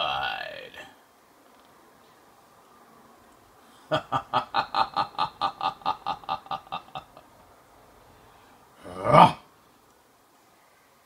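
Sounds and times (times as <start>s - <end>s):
person laughing: 3.9s - 7.3s.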